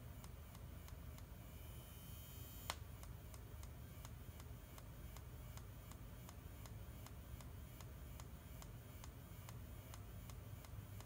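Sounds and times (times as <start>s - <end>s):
strobe flash ticking: 0.0s - 11.0s
high thin electronic whine: 1.5s - 2.8s.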